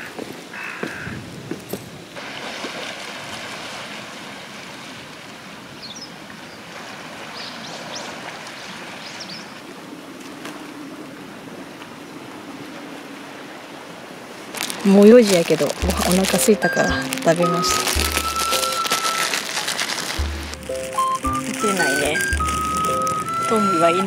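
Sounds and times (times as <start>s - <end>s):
footsteps on stone paving: 0.0s - 1.9s, 14.6s - 24.0s
short high chirps: 15.8s - 19.4s, 20.2s - 24.0s.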